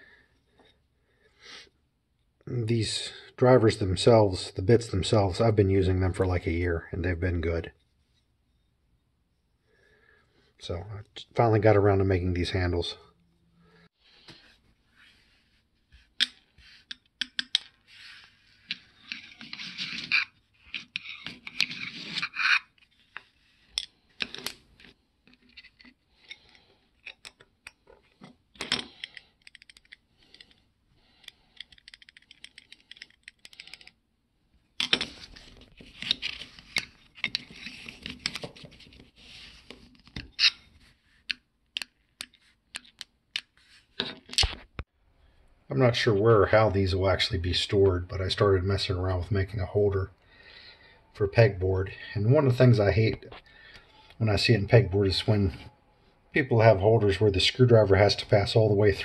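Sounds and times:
screw scraping and clicking on workbench: 18.7 - 27.8.

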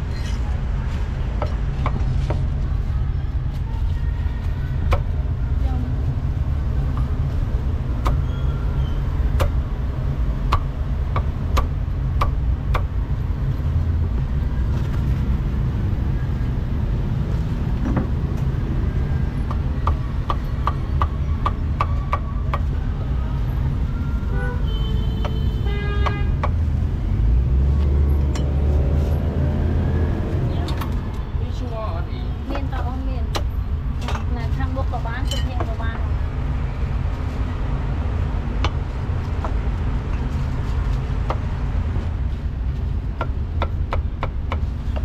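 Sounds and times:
road traffic rumble: 0.0 - 45.0
vehicle horn toot: 24.3 - 26.4.

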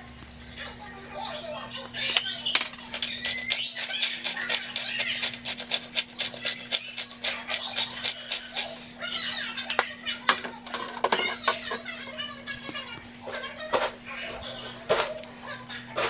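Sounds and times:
pepper grinder clicking: 2.8 - 8.7.

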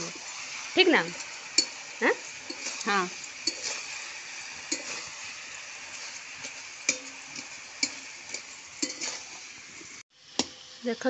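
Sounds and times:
curry sizzling in a pan: 0.0 - 11.0
spoon scraping and clinking pan: 1.0 - 9.9.

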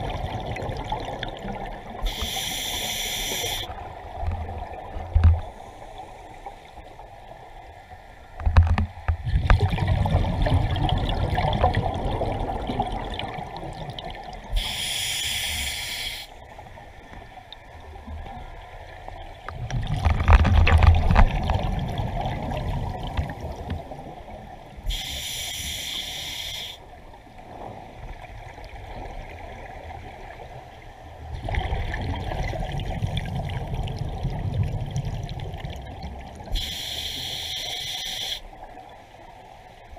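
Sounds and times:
regulator inhalation hiss: 2.0 - 3.7, 14.5 - 16.4, 24.9 - 26.8, 36.6 - 38.5.

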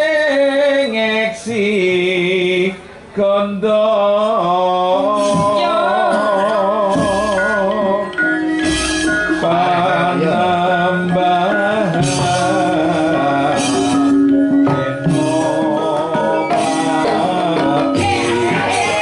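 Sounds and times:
person singing: 0.0 - 19.0
gamelan ensemble playing: 5.0 - 19.0
hand drumming: 5.2 - 19.0.

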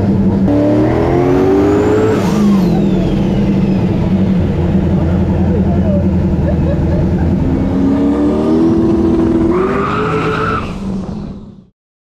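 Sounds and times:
car engine accelerating hard: 0.0 - 11.7
high screech: 9.4 - 10.9.

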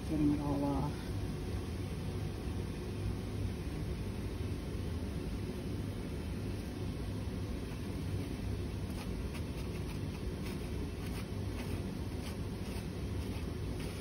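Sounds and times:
low background rumble: 0.0 - 14.0
metal spatula scraping paper: 8.2 - 14.0.

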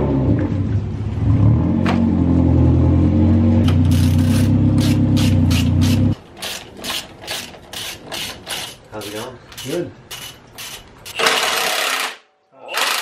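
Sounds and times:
hand ratchet clicking: 3.9 - 12.0.

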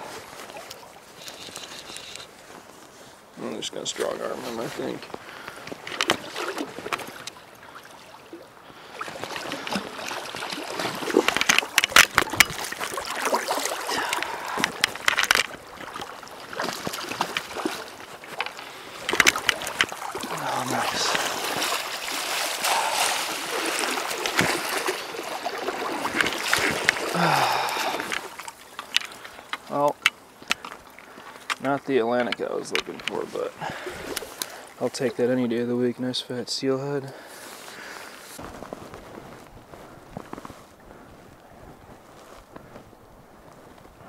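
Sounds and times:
creek flowing: 0.0 - 38.5
fish splashing: 5.4 - 31.6.

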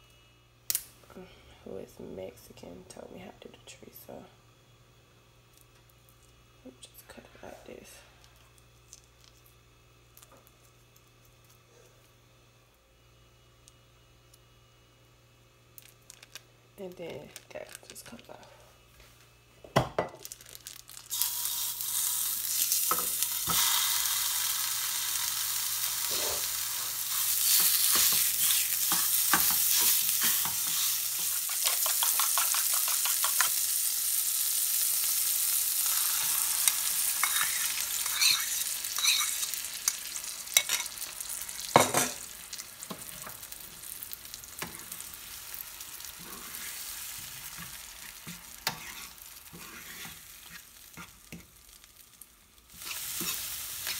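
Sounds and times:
sausage sizzling in a pan: 20.0 - 53.9
utensil scraping a pan: 37.2 - 39.5, 47.6 - 51.1.

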